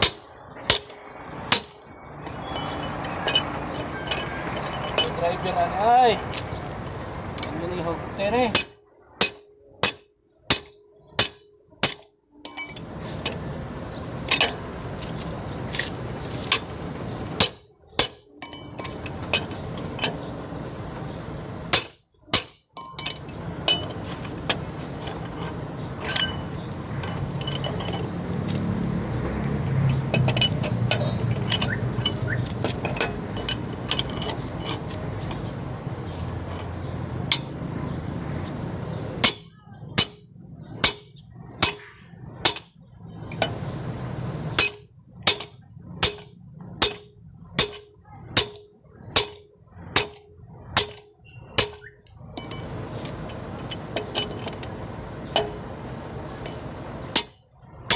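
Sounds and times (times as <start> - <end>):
hammer clanking on steel wrench: 0.0 - 1.8, 2.4 - 5.5, 8.5 - 13.4, 14.2 - 14.6, 17.4 - 20.3, 21.7 - 28.2, 29.6 - 35.6, 36.4 - 37.6, 39.2 - 43.6, 44.5 - 57.9
wrench clinking on nuts: 0.0 - 6.0, 7.3 - 13.4, 14.2 - 14.6, 17.4 - 20.4, 21.7 - 28.6, 29.4 - 37.6, 39.2 - 43.6, 44.5 - 57.9
low steady rumble: 2.5 - 57.9.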